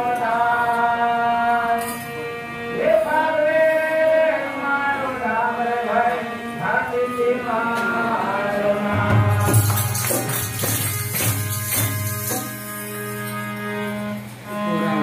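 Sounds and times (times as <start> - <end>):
man singing: 2.7 - 10.5
drum strokes: 8.9 - 12.8
jingling hand cymbals: 9.3 - 14.0.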